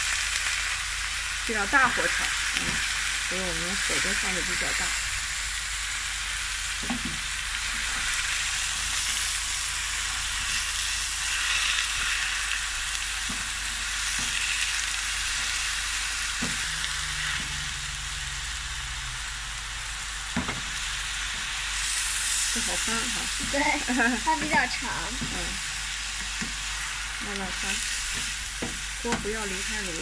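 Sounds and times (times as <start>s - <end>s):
leaves sizzling in hot oil: 0.0s - 30.0s
wooden spatula knocking pan: 28.6s - 29.4s.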